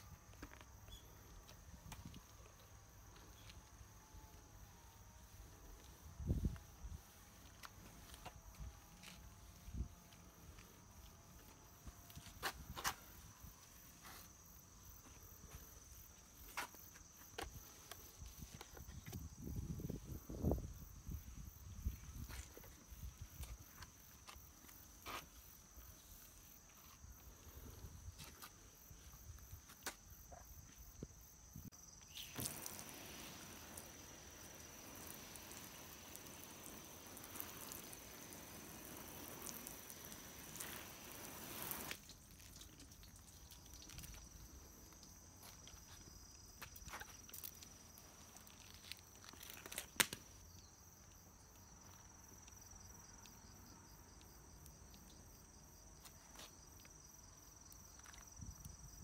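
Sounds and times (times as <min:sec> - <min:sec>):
hose spray hissing on car: 0:01.9 - 0:14.3, 0:32.0 - 0:44.8.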